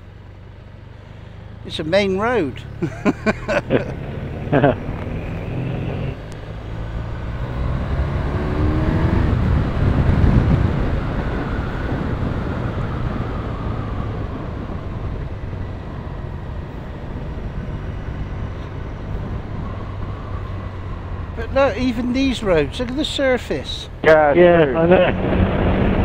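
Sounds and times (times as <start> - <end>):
motorcycle engine accelerating: 0.0 - 26.0
wind rush: 7.2 - 22.1, 24.6 - 26.0.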